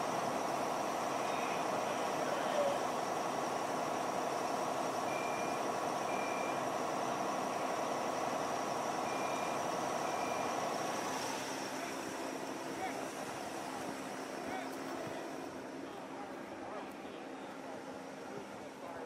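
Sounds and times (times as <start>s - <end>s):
truck engine running: 0.0s - 19.0s
reversing beeper: 5.0s - 6.7s, 9.0s - 10.6s.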